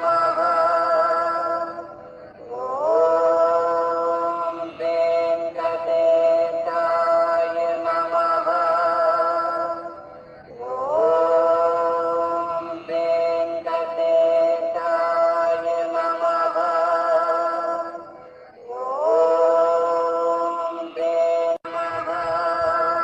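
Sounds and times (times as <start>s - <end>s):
voice chanting long notes: 0.0s - 23.0s.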